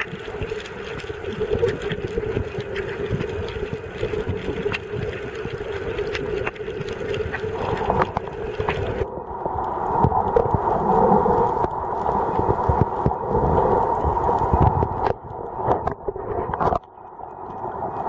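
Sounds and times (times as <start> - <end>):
sharp underwater clicks: 0.0 - 9.0
muffled underwater rumble: 0.0 - 18.0.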